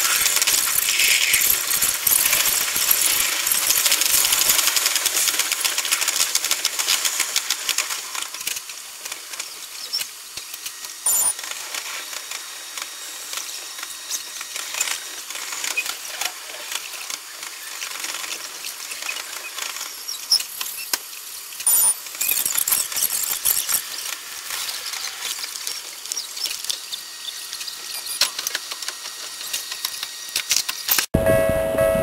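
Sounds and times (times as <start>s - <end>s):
high squealing and hissing: 0.0s - 4.6s.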